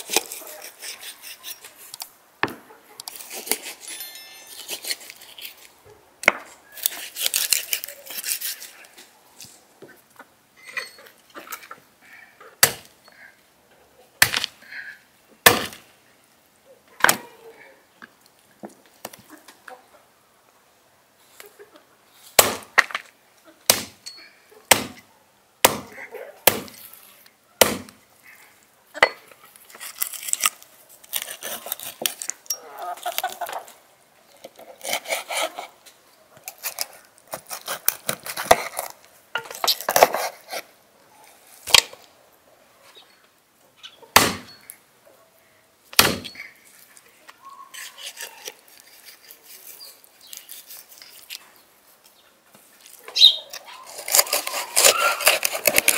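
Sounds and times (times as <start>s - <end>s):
knife cracking through joints: 3.0s - 9.0s, 29.6s - 33.7s, 36.4s - 40.7s, 52.9s - 55.9s
hatchet chopping on wood: 15.5s - 15.8s, 22.4s - 22.9s, 23.7s - 24.0s, 24.7s - 25.0s, 25.6s - 25.9s, 26.5s - 26.8s, 27.6s - 28.0s, 44.2s - 44.5s, 46.0s - 46.3s.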